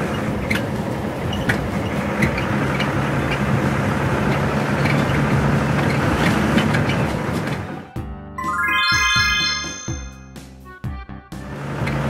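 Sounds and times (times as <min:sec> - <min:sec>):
truck engine running: 0:00.0 - 0:08.0.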